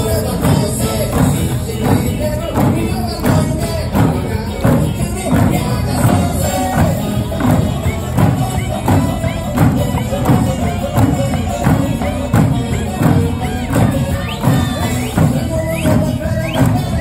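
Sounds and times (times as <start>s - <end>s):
drums struck on steady beat: 0.0s - 17.0s
music: 0.0s - 17.0s.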